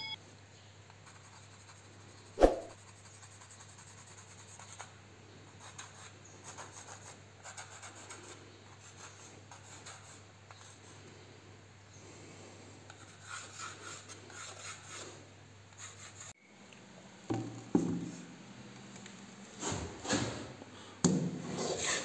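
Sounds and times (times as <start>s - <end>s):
pencil scratching on wall: 1.0s - 4.9s, 5.6s - 11.0s, 12.9s - 15.2s, 15.8s - 16.4s.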